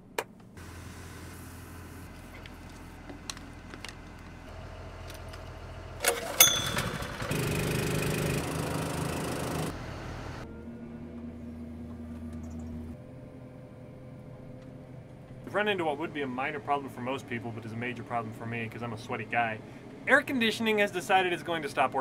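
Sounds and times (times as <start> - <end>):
small gas engine starting and running: 0.6 - 10.5
low steady hum: 9.6 - 22.0.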